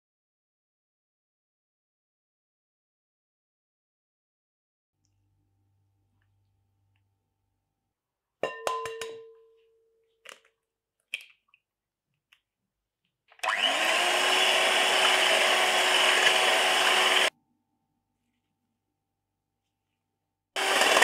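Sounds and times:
egg tapping on glass bowl: 0:08.4 - 0:09.4
electric hand mixer beating eggs: 0:13.4 - 0:17.3, 0:20.6 - 0:21.0.

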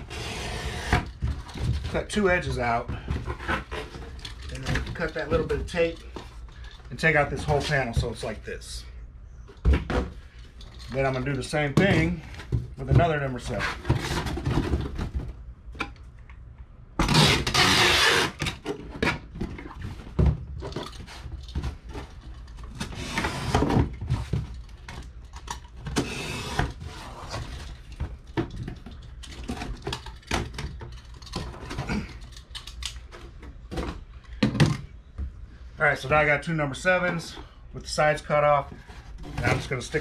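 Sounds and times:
cardboard scraping and rustling: 0:11.7 - 0:15.4, 0:26.0 - 0:28.2
box cutter slicing cardboard: 0:17.0 - 0:18.4.

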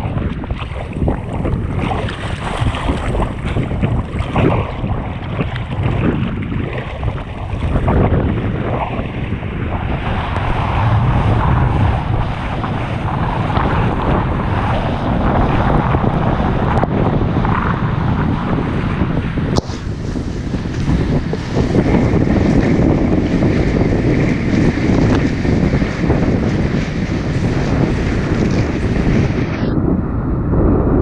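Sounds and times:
water rushing and splashing: 0:00.0 - 0:16.3
wind buffeting microphone: 0:00.0 - 0:31.0.

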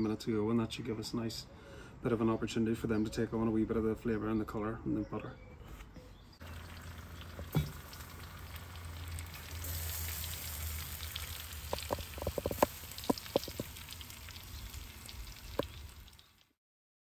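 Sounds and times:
food sizzling in a grill: 0:06.4 - 0:16.6
sharp pops and crackles: 0:06.4 - 0:16.6.

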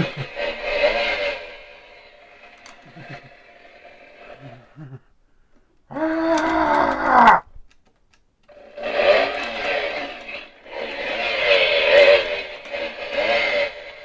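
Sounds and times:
chainsaw engine revving: 0:00.0 - 0:05.0, 0:08.5 - 0:14.0.

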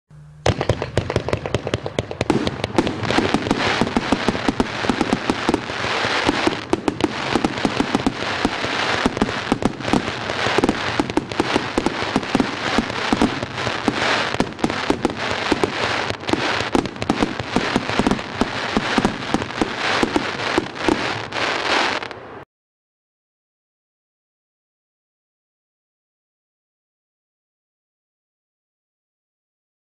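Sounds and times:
firework shots: 0:00.4 - 0:22.4
firework hiss and crackle: 0:00.5 - 0:22.2.

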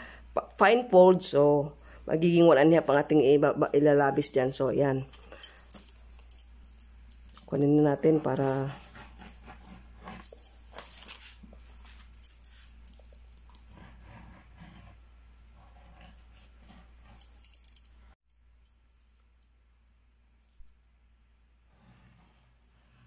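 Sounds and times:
small tools clicking: 0:05.1 - 0:07.7, 0:17.2 - 0:17.9
paper rustling: 0:08.2 - 0:13.2.

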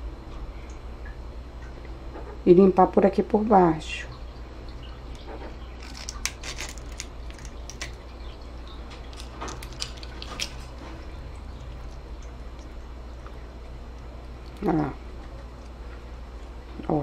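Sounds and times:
steady low hum: 0:00.0 - 0:17.0
shrimp shell cracking: 0:05.8 - 0:08.2, 0:08.9 - 0:11.0, 0:11.6 - 0:14.8.

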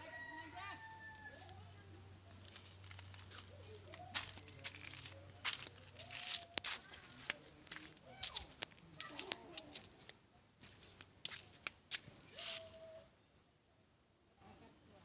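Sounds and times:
footsteps on dirt: 0:02.4 - 0:12.7.

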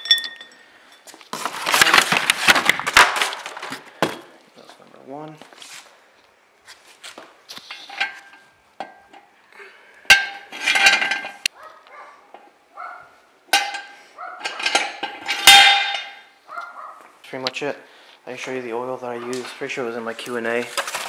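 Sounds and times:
metal jack stands clanking: 0:07.6 - 0:09.3, 0:10.1 - 0:11.5, 0:13.5 - 0:16.3.

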